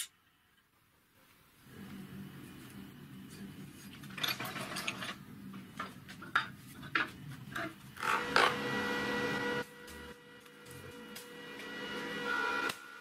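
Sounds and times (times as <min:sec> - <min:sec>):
steel parts clinking and scraping: 0:04.0 - 0:05.2.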